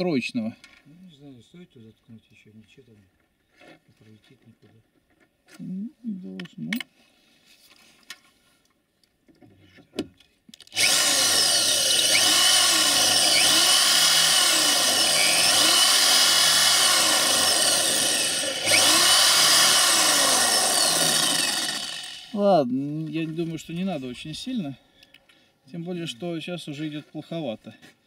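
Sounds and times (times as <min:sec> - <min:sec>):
electric drill boring into steel: 0:10.7 - 0:22.4.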